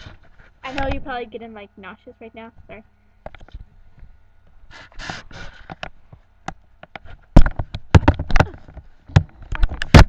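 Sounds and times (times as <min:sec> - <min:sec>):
loud knocks and bumps: 0:07.3 - 0:10.0.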